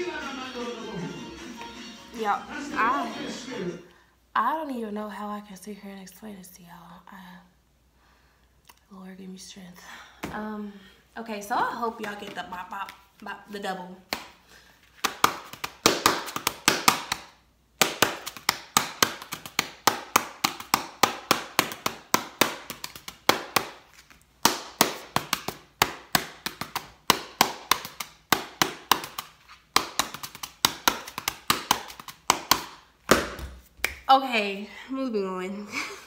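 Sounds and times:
rhythmic hand slaps and taps: 0:14.0 - 0:34.1.

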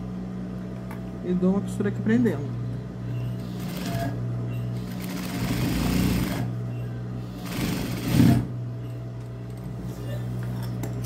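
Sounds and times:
steady low hum: 0:00.0 - 0:11.0
industrial sewing machine stitching: 0:03.4 - 0:04.2, 0:04.8 - 0:06.5, 0:07.3 - 0:08.5.

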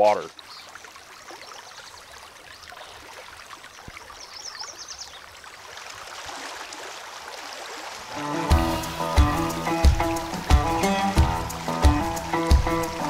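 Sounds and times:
shallow river water flowing: 0:00.0 - 0:13.0
person wading through water: 0:00.3 - 0:09.0.

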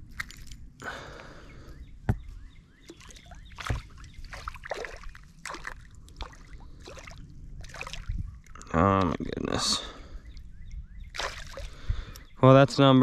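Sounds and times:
water sloshing: 0:00.0 - 0:08.7, 0:11.1 - 0:12.0.

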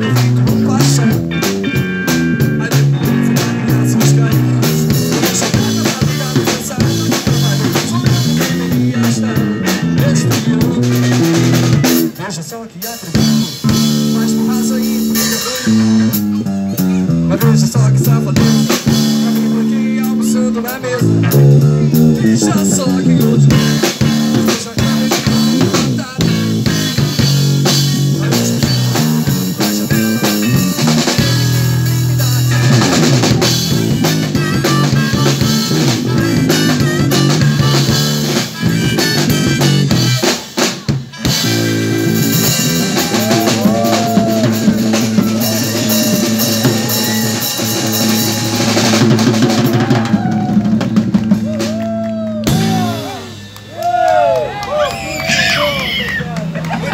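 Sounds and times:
electric guitar: 0:00.0 - 0:12.2, 0:13.0 - 0:56.9
electric bass: 0:00.0 - 0:12.3, 0:13.1 - 0:56.9
drum kit: 0:00.0 - 0:56.9
lead line with bent notes: 0:13.1 - 0:50.2.

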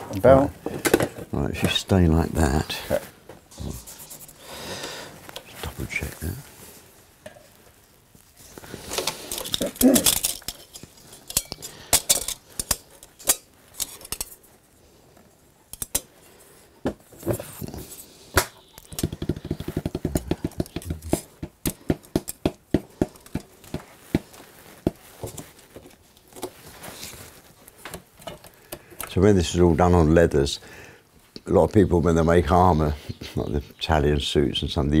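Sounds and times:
metal armour plates clinking: 0:09.2 - 0:14.3.

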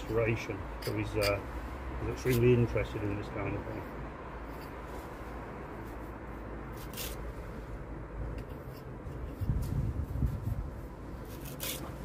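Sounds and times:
fingers scraping mortar: 0:00.0 - 0:01.4, 0:06.7 - 0:07.2, 0:11.2 - 0:12.0.

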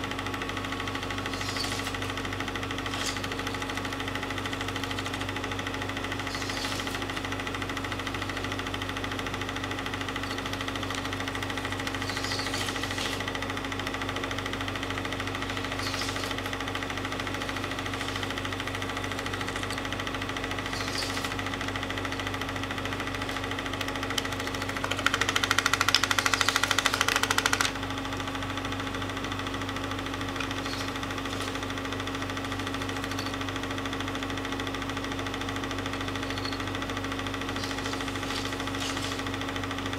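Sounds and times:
projector motor hum: 0:00.0 - 0:39.9
film mechanism clattering: 0:01.2 - 0:03.9, 0:17.3 - 0:21.4, 0:23.2 - 0:27.8.

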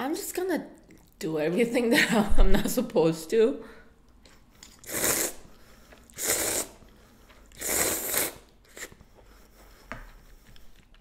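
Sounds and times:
person slurping noodles: 0:04.6 - 0:09.0.

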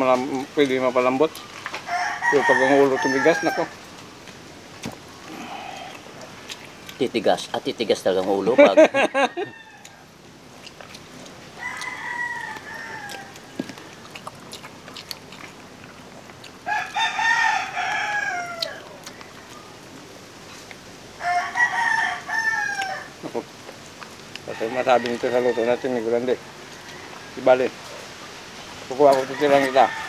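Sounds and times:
rooster crowing: 0:01.8 - 0:03.8, 0:08.9 - 0:10.2, 0:11.5 - 0:14.2, 0:16.6 - 0:19.8, 0:21.2 - 0:23.2, 0:24.4 - 0:27.8, 0:29.0 - 0:30.0.

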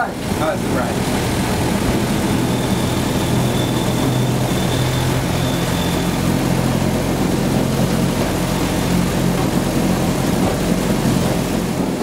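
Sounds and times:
railcar engine running: 0:00.0 - 0:12.0
faint high whine: 0:02.0 - 0:07.1.

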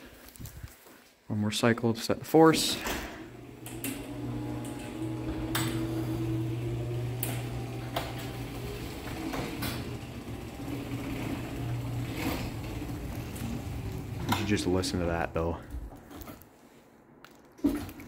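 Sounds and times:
garage door opener motor humming: 0:02.5 - 0:15.2.

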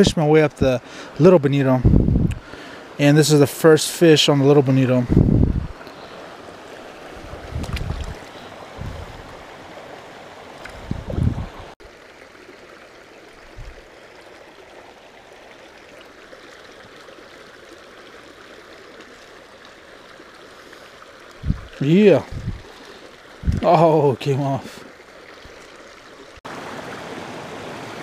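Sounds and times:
creek running over stones: 0:00.0 - 0:28.0.

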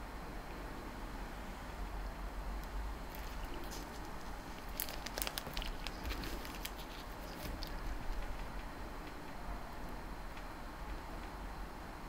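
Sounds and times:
plastic bags crinkling: 0:03.1 - 0:08.2.

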